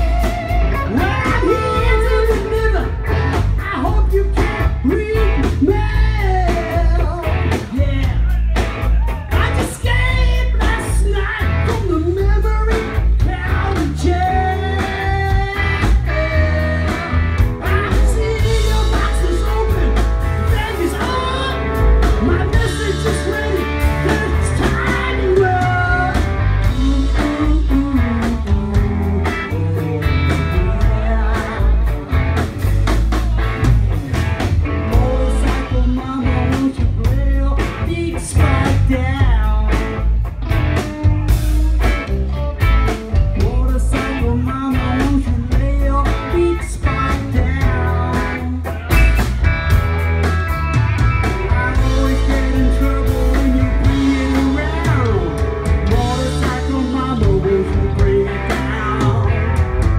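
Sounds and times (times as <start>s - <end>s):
rock band playing: 0.0s - 59.9s
person singing lead: 9.3s - 31.9s, 51.4s - 59.9s.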